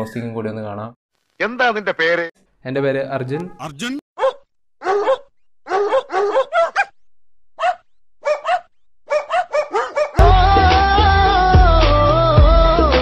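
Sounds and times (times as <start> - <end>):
dog barking: 4.2 - 7.0, 7.6 - 10.2.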